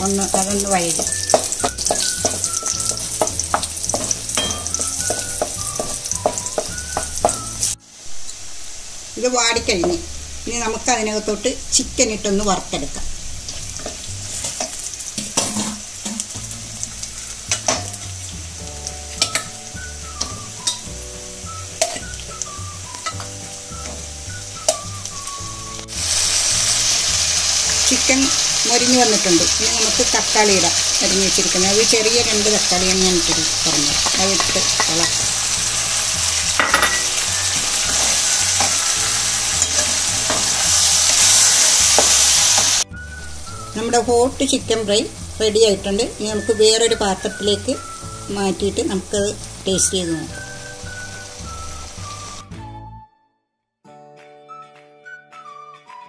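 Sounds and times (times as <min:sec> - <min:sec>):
soft background music: 0:00.0 - 0:07.9, 0:09.2 - 0:53.2
food sizzling in a pan: 0:00.0 - 0:52.5
spatula scraping and stirring: 0:00.2 - 0:07.7, 0:13.5 - 0:16.4
spoon clinking against pan: 0:01.0 - 0:07.5, 0:19.2 - 0:19.6, 0:21.8 - 0:22.0, 0:24.7 - 0:24.9, 0:33.8 - 0:35.2, 0:36.6 - 0:37.2, 0:39.6 - 0:40.6.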